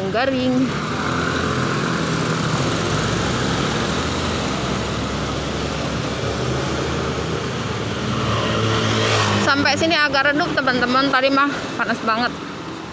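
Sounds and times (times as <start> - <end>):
vehicle engine running: 0.0 - 8.5
street traffic noise: 0.0 - 12.9.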